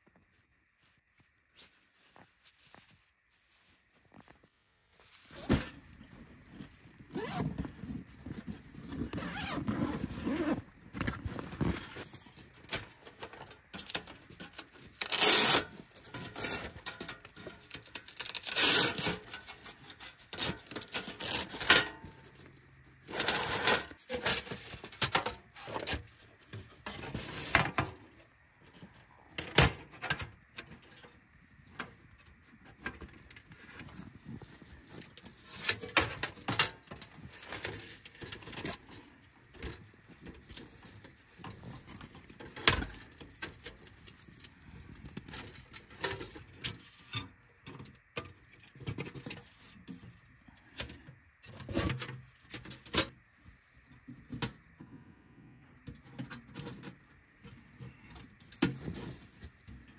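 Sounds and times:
metal panels scraping and squeaking: 12.7s - 22.1s, 23.1s - 26.1s.

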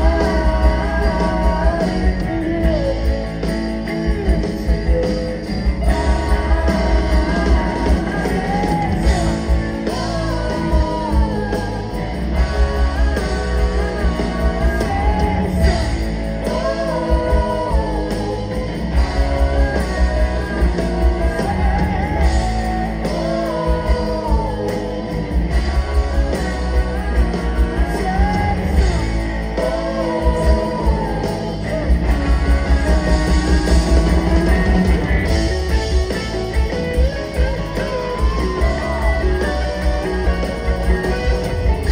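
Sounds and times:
lead and backing vocals: 0.0s - 41.9s
live rock band playing: 0.0s - 41.9s.

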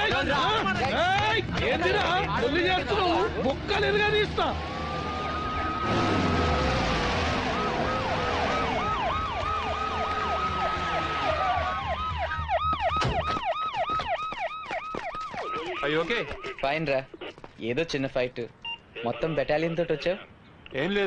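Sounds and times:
wailing police siren: 4.2s - 16.6s
yelping siren: 4.5s - 16.7s.

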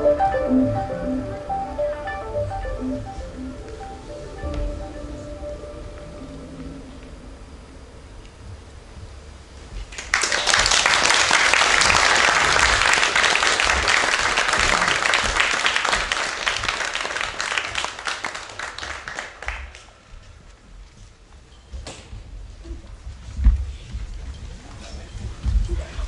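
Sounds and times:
audience applauding: 9.9s - 20.0s.

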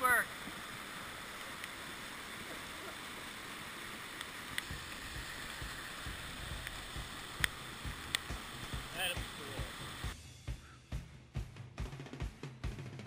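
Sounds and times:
rushing floodwater: 0.0s - 10.2s
knocks and low thumps: 4.6s - 12.8s.

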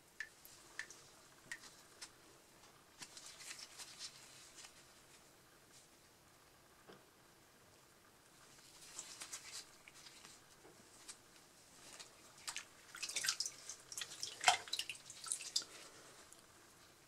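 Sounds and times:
water dripping in a basin: 0.1s - 1.7s, 12.4s - 15.7s.

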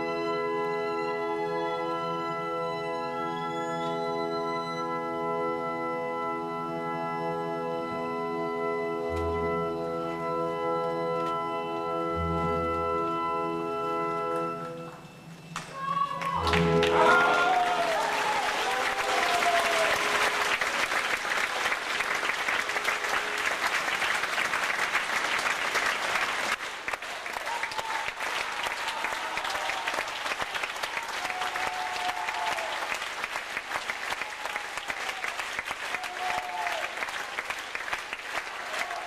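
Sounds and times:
orchestra playing: 0.0s - 26.6s
audience applauding: 14.2s - 39.0s.

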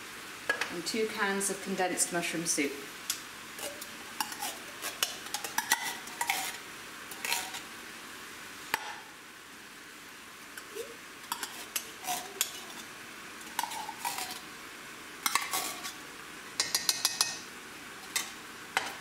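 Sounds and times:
metal spoon scraping a tin can: 3.6s - 7.6s, 11.3s - 14.4s, 15.3s - 16.0s.

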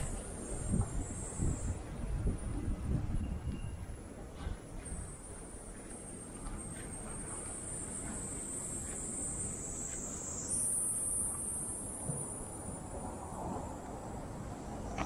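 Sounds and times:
cicadas buzzing: 6.9s - 13.5s.

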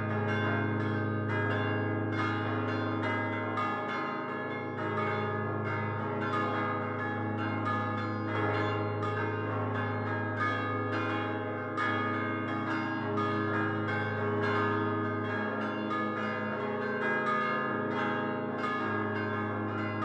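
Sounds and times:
church bells pealing: 0.0s - 20.0s.

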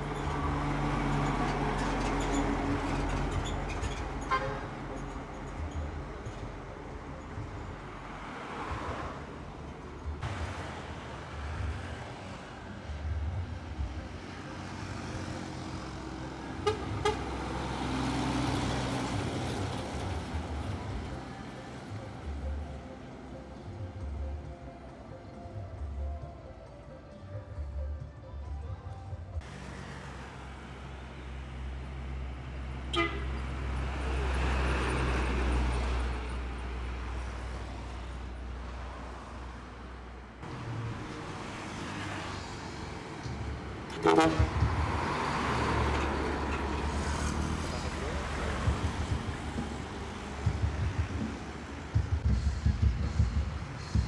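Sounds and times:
diesel truck passing: 0.0s - 24.9s, 29.4s - 54.0s
truck horn toots: 4.2s - 5.0s, 16.6s - 17.5s, 32.9s - 33.5s, 43.9s - 45.0s.

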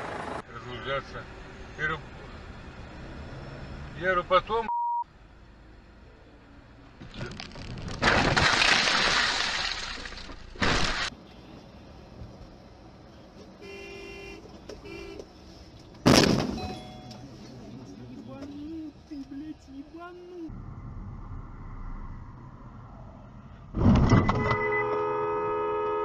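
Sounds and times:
short beeps: 4.7s - 5.1s, 16.6s - 17.2s
car crash impact: 7.1s - 11.1s, 16.0s - 16.8s.

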